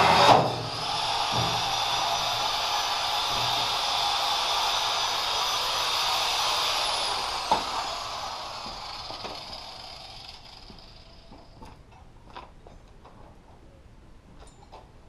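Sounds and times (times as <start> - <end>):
angle grinder spinning down: 0.0 - 11.3.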